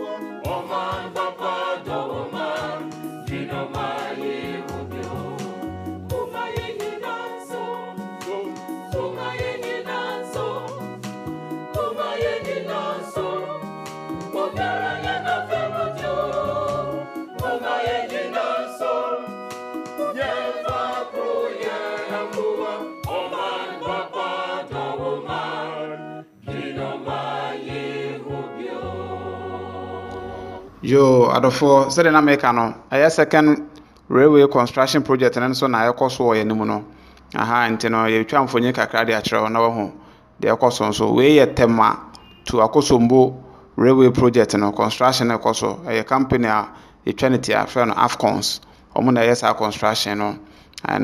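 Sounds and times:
choir singing over a beat: 0:00.0 - 0:30.9.

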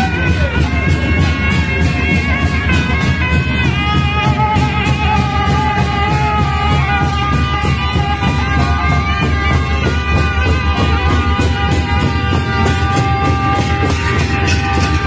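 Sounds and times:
bass drum drumming: 0:00.0 - 0:15.0
brass horns playing melody: 0:00.0 - 0:15.0.

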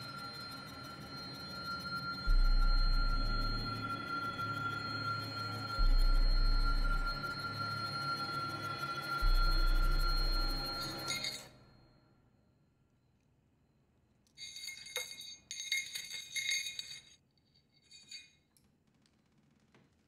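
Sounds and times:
held music tone: 0:00.0 - 0:11.8
bright chiming tinkles: 0:00.0 - 0:12.1, 0:14.4 - 0:18.5.

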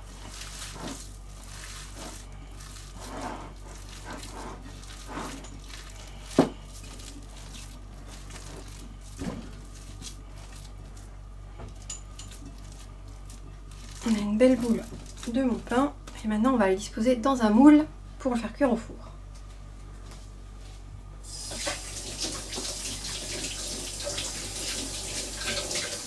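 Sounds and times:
hands kneading wet meat: 0:00.0 - 0:16.2
low steady hum: 0:00.0 - 0:26.0.

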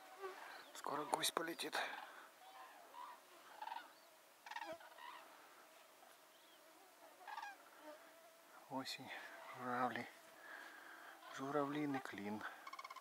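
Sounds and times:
cranes trumpeting calls: 0:01.9 - 0:05.4, 0:07.2 - 0:07.7, 0:10.4 - 0:13.0.

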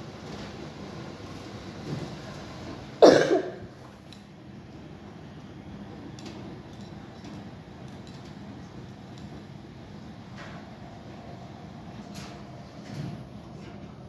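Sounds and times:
washing machine humming: 0:00.0 - 0:14.0.

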